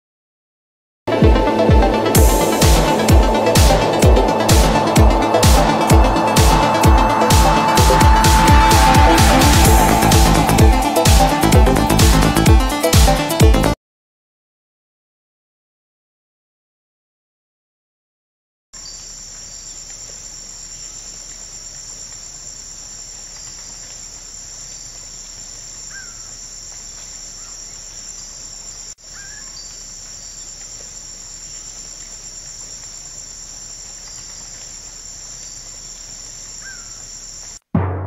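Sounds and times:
insects chorus: 1.5s - 12.8s, 18.8s - 37.6s
faint short bird chirps: 29.1s - 29.8s.

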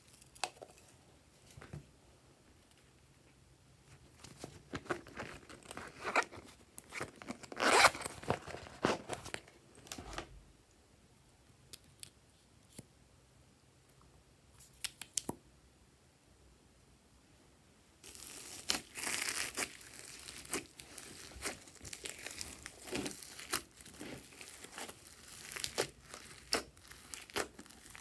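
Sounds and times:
handbag zipper being pulled: 7.6s - 8.1s.

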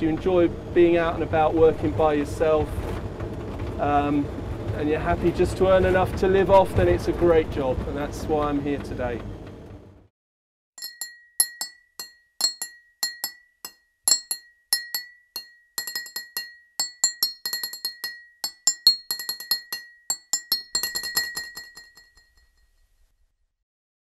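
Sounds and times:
glass clinking: 10.8s - 22.6s.

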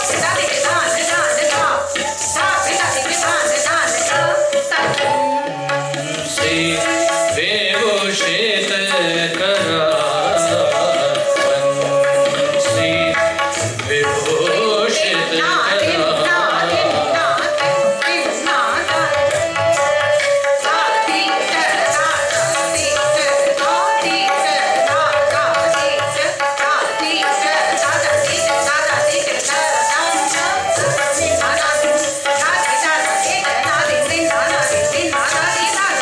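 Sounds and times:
tabla playing: 0.0s - 36.0s
person singing: 4.7s - 19.4s
held melodic notes: 26.8s - 36.0s.

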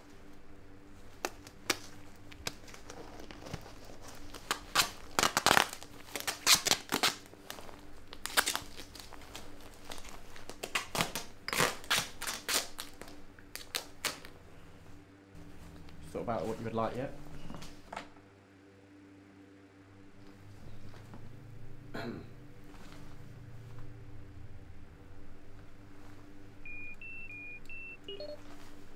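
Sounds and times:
crinkling and rustling: 0.0s - 18.2s, 20.2s - 21.8s, 22.4s - 24.3s, 25.0s - 26.8s, 28.3s - 28.9s
duct tape ripping: 1.2s - 14.3s.

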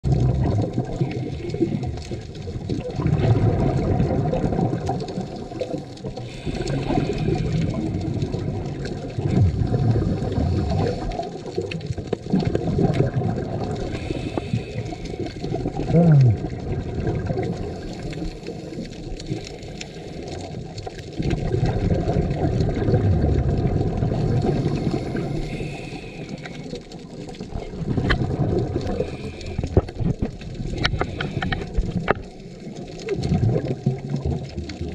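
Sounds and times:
diver exhaling bubbles: 0.0s - 34.9s
regulator hiss on inhale: 1.0s - 2.1s, 5.3s - 8.4s, 10.3s - 11.4s, 13.8s - 15.6s, 17.5s - 20.5s, 24.2s - 27.1s, 28.9s - 30.1s, 30.7s - 32.6s.

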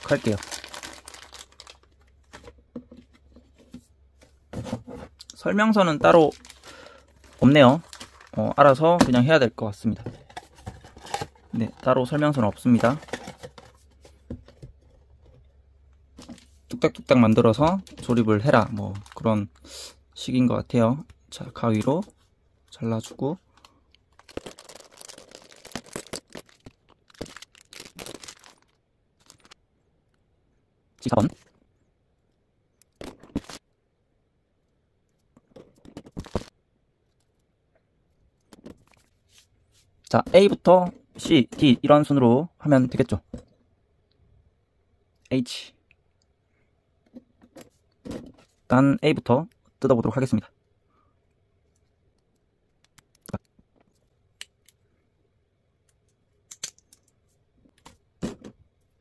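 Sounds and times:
plastic packaging crinkling and clicking: 0.0s - 2.5s, 6.0s - 9.2s, 10.0s - 13.8s, 17.3s - 19.6s, 23.5s - 29.6s.

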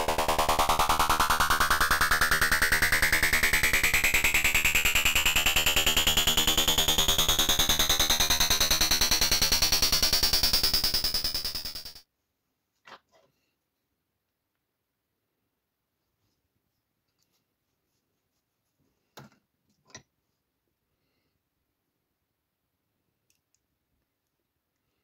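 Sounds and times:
higher synthesizer tone falling: 0.0s - 12.0s
pulsing synthesizer tone rising: 0.0s - 12.0s.

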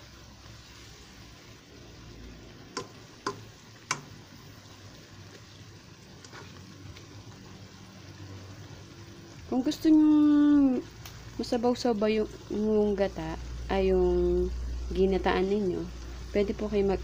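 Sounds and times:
food simmering and sizzling: 0.0s - 17.0s
spatula clicking against wok: 2.7s - 4.2s.

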